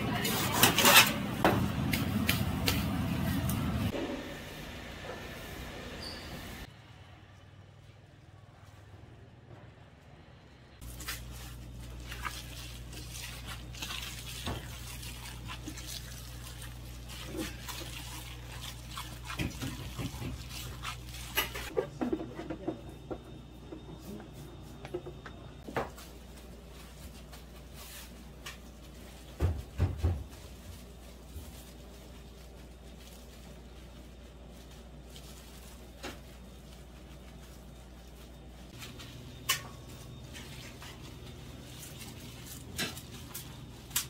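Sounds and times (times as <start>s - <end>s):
wet crackling of stirred filling: 10.8s - 21.8s.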